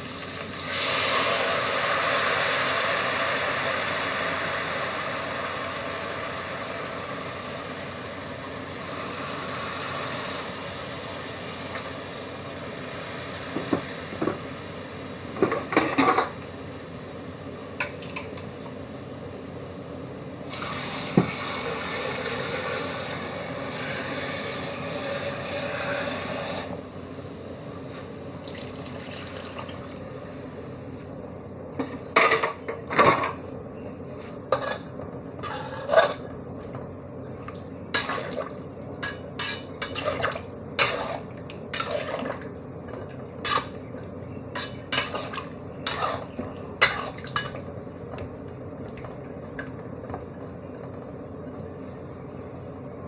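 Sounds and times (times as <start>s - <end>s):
metal spatula scraping a wok: 34.5s - 36.3s, 39.0s - 40.2s, 40.8s - 42.1s, 44.5s - 47.2s.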